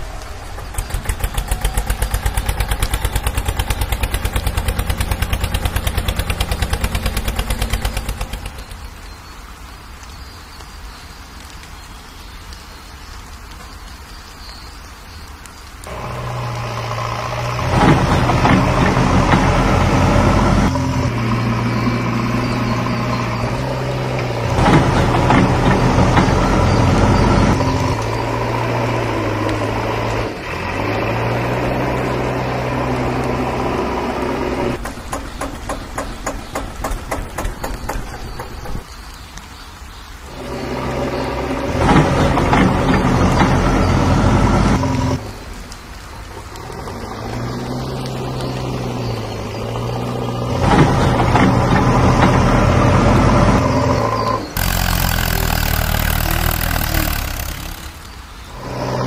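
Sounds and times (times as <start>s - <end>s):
tractor engine running: 0.0s - 9.1s, 15.8s - 38.9s, 40.3s - 59.0s
falling water hissing: 0.0s - 59.0s.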